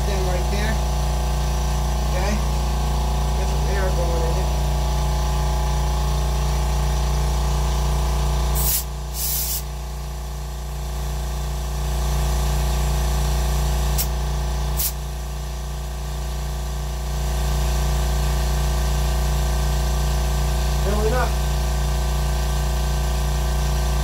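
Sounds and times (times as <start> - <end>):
air compressor running: 0.0 - 24.0
air hissing from hose chuck: 8.6 - 9.7, 14.8 - 15.0.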